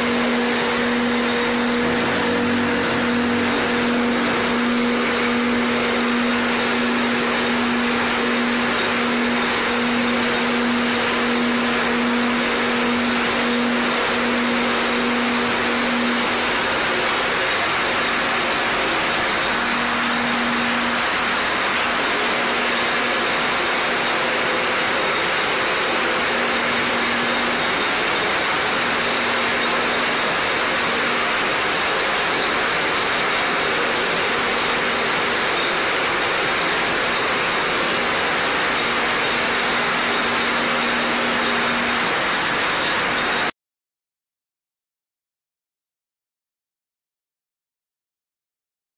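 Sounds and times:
low hum: 0.0 - 22.1.

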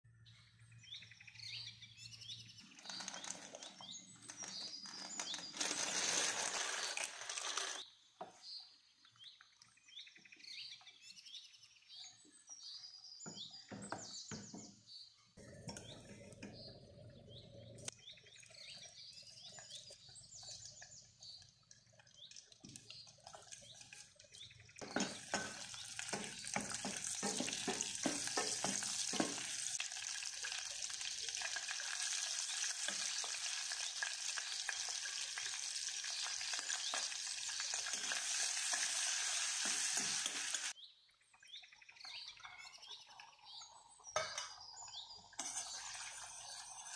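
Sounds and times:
birds chirping: 0.1 - 29.8, 40.0 - 46.9
butter sizzling in saucepan: 2.7 - 7.8, 18.8 - 40.8, 44.1 - 46.9
water running into pot: 2.8 - 7.8, 18.2 - 40.7, 42.4 - 46.9
spoon stirring pasta in water: 18.7 - 29.7.

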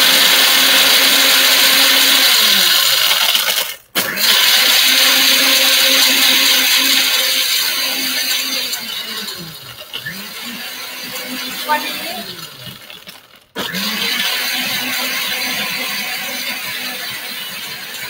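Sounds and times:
blender crushing ice: 0.0 - 18.0.

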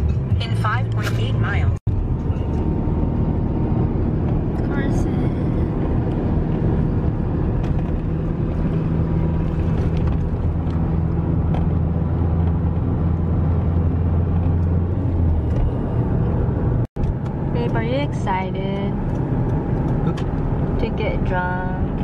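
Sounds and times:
car engine and tyre drone: 0.0 - 22.0.

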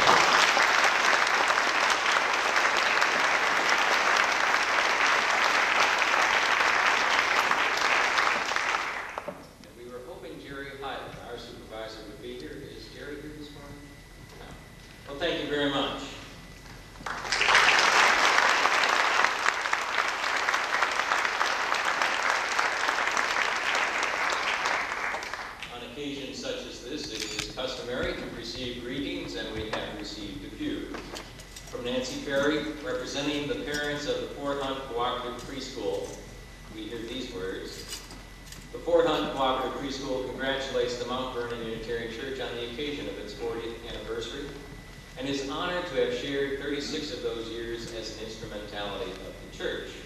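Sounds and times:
congregation applauding: 0.0 - 9.4, 17.0 - 25.8.

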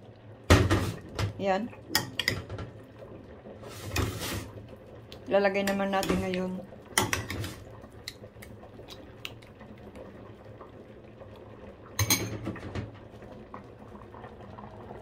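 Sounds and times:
simmering pot bubbling: 0.0 - 15.0
bowl clatter: 12.0 - 12.9.

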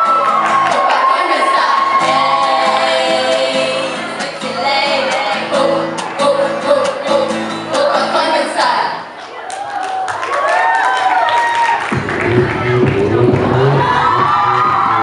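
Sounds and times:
backing music: 0.0 - 8.8, 11.8 - 15.0
women singing together: 0.7 - 9.0.

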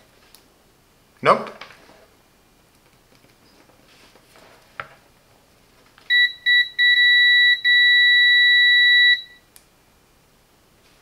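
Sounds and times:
meter continuity beeps: 6.1 - 9.5.

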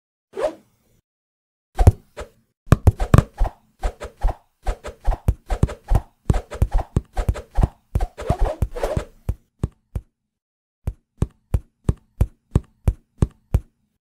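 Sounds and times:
cartoon punches and hits: 1.8 - 2.1, 2.7 - 3.5.

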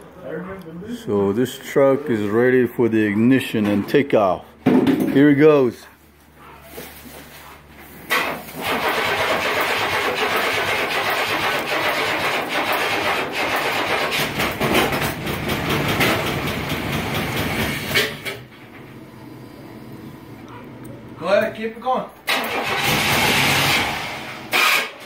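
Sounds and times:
engine starting and running unevenly: 8.1 - 18.9, 22.2 - 25.0.

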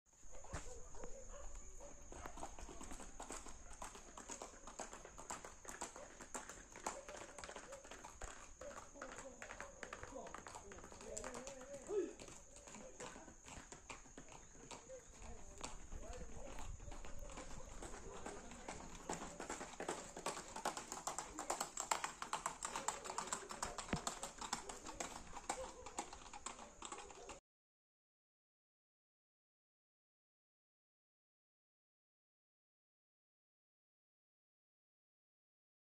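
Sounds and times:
horse hooves clip-clopping on concrete: 0.3 - 27.4.

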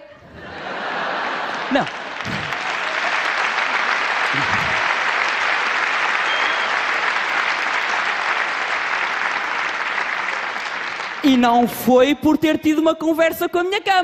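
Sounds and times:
audience applauding: 0.6 - 11.3.

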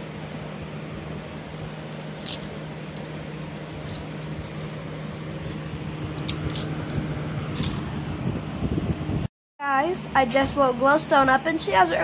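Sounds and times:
low hum: 0.0 - 9.3
handcuff chain clinking: 1.8 - 7.8.

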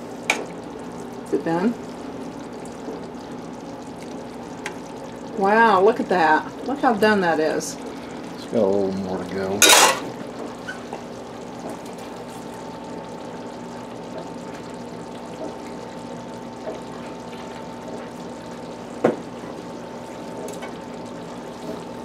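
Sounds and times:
patties sizzling in sauce: 0.0 - 22.0.

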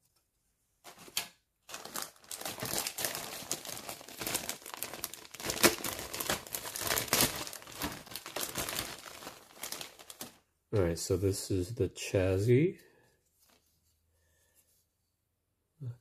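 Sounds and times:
plastic bag crinkling: 0.9 - 10.5.

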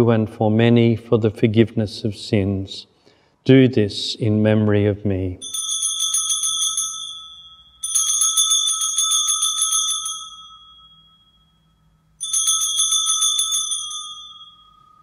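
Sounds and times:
small altar bells jingling: 5.4 - 15.0.

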